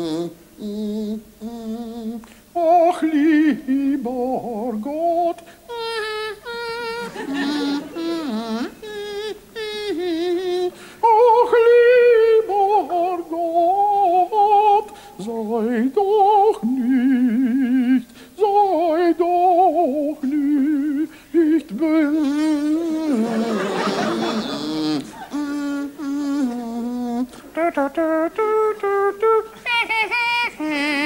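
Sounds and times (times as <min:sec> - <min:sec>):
man humming and singing: 0:00.0 - 0:31.0
rough breathy noise: 0:10.7 - 0:11.0.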